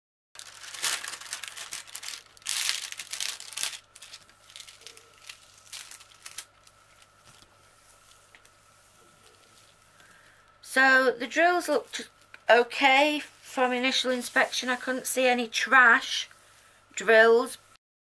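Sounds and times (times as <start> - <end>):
plastic crinkling and rustling: 0.4 - 10.6.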